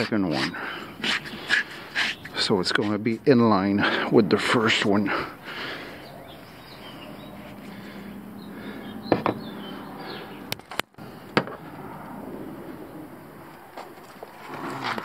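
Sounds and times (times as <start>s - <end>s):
steady low hum: 0.0s - 15.0s
faint bird chirps: 5.9s - 10.5s.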